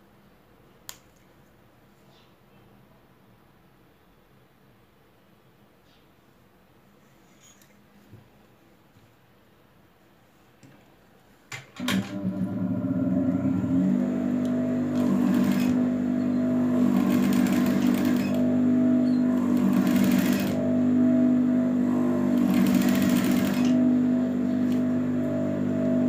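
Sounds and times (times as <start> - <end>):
sewing machine stitching: 11.8 - 12.6, 14.8 - 20.8, 21.8 - 25.0.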